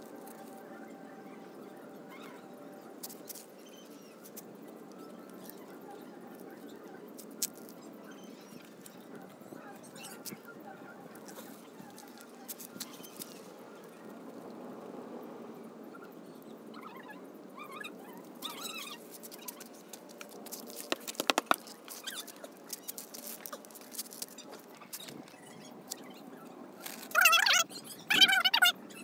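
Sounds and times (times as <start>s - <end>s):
squeaky animal chirps: 27.1s - 29.0s.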